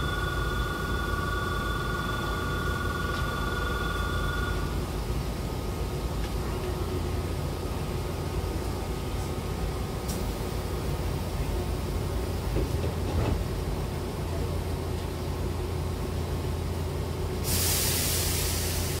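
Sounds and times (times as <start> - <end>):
train humming: 0.0 - 19.0
sliding train doors closing: 12.4 - 13.8
loud hiss of air: 17.4 - 19.0.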